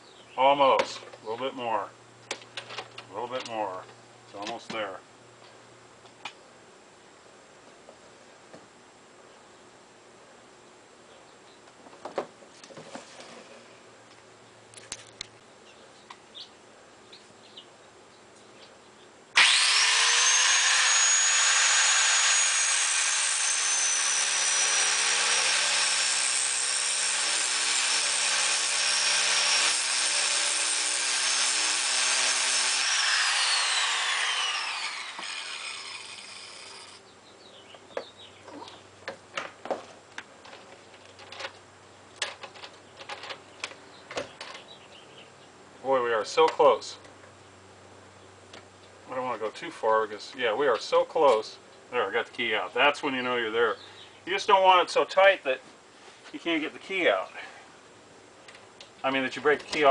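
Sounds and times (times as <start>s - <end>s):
grinder winding down whine: 19.4s - 25.8s, 32.3s - 37.0s
angle grinder grinding metal: 19.4s - 37.0s.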